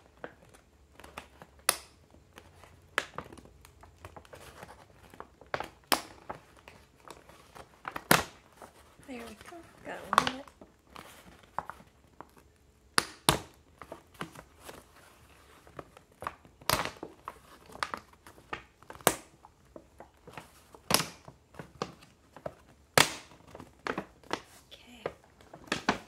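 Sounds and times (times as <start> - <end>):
paper snapping off staples: 23.0 - 24.4.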